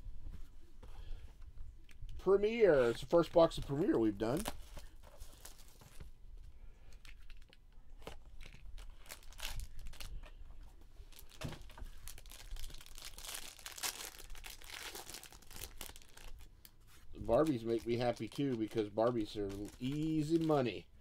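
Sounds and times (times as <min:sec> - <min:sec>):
foil pack crinkling and tearing: 0:07.0 - 0:10.2, 0:11.1 - 0:16.5, 0:17.2 - 0:20.8.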